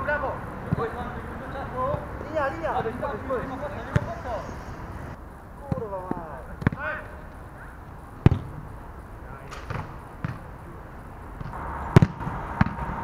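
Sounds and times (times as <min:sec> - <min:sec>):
football being kicked: 0:03.8 - 0:04.2, 0:05.7 - 0:06.9, 0:08.2 - 0:08.6, 0:09.6 - 0:10.4, 0:11.4 - 0:13.0.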